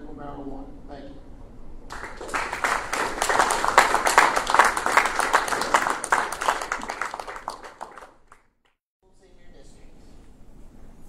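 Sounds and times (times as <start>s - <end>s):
audience applauding: 1.9s - 8.4s.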